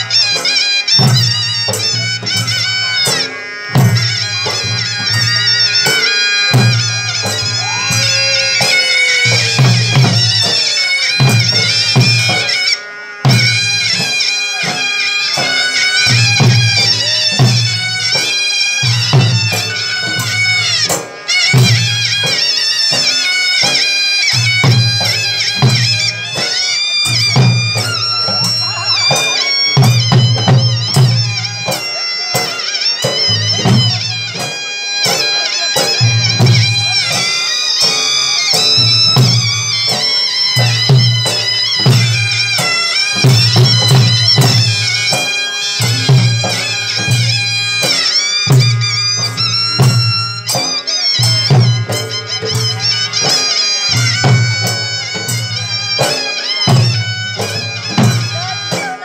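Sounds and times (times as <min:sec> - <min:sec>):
barrel drums beating: 0:00.0 - 0:12.6, 0:13.2 - 0:59.0
shrill reed pipe melody: 0:00.0 - 0:59.0.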